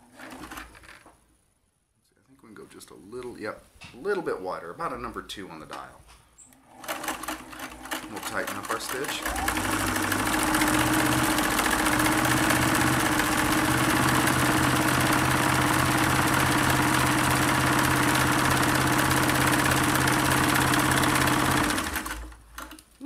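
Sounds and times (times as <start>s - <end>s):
sewing machine running: 6.7s - 22.8s.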